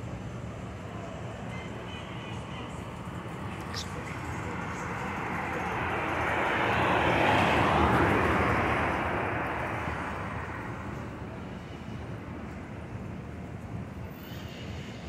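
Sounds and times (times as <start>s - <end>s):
vehicle passing by: 2.8s - 10.8s.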